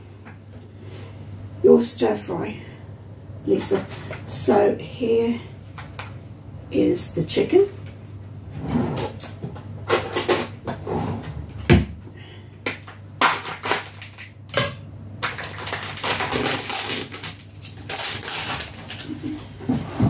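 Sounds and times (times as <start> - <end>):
plastic film crackling: 13.2 - 14.4, 15.2 - 19.2.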